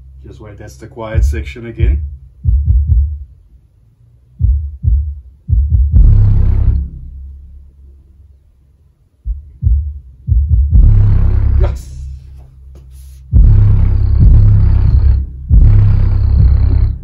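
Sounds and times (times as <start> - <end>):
deep bass thumps: 1.1 - 3.4, 4.4 - 7.6, 9.2 - 17.0
heavy bass swell with rush: 5.9 - 8.1, 10.7 - 12.4, 13.0 - 17.0.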